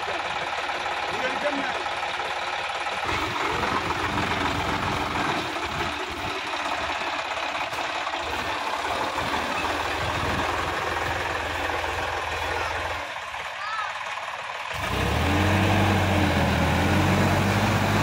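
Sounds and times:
tractor diesel engine rumbling: 0.0s - 18.0s.

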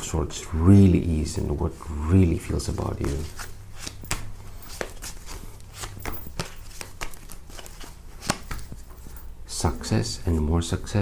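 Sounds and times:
cards being shuffled: 2.6s - 9.3s.

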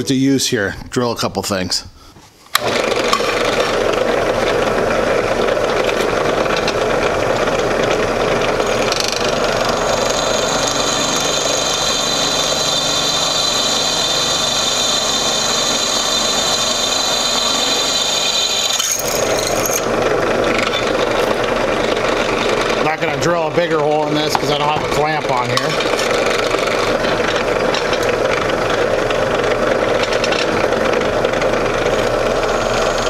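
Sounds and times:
drill press drilling into steel: 2.6s - 33.0s
high-pitched squeal of drill bit: 10.2s - 19.9s.

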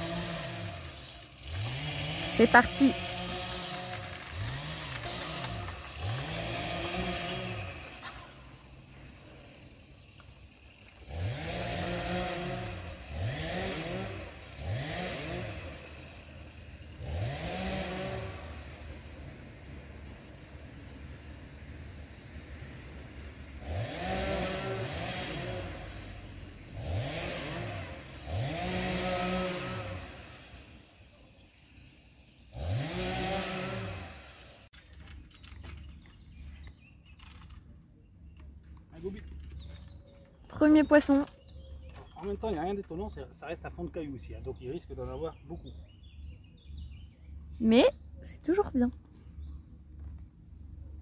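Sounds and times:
engine revving: 0.0s - 36.0s.

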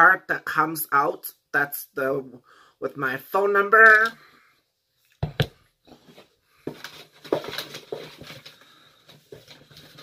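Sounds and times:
scraping and rustling: 5.8s - 10.0s.

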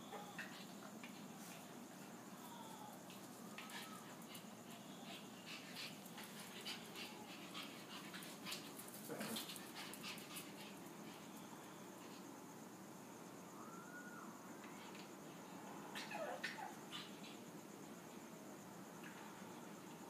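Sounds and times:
dogs sniffing and panting: 3.0s - 11.4s.

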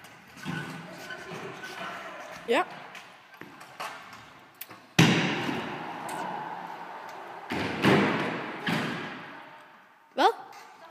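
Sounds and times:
scooter wheels rolling on ramps: 0.0s - 9.7s
scooter wheels thudding: 3.4s - 9.4s.

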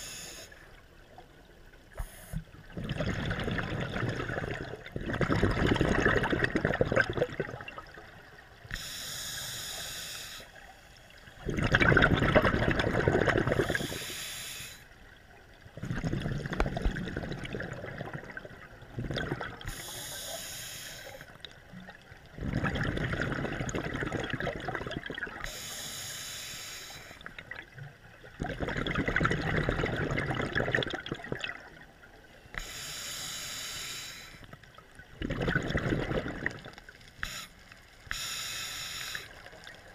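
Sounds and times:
hissing regulator inhale: 0.0s - 0.7s, 2.0s - 2.5s, 8.7s - 11.0s, 13.5s - 15.0s, 19.6s - 21.4s, 25.4s - 27.3s, 32.5s - 34.6s, 37.2s - 39.6s
gush of exhaled bubbles: 2.6s - 8.1s, 11.4s - 13.9s, 15.8s - 19.7s, 22.3s - 25.5s, 27.4s - 31.8s, 35.1s - 36.9s.

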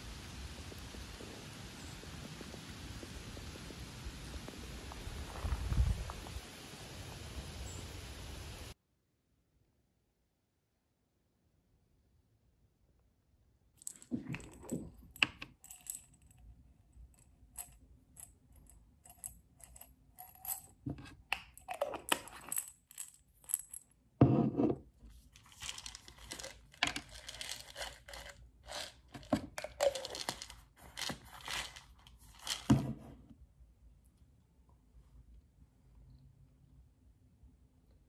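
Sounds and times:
pills rattling in bottle: 13.8s - 16.2s, 21.4s - 23.8s, 25.4s - 32.8s
bottle caps twisted and clicked: 18.6s - 23.8s, 25.4s - 32.9s.

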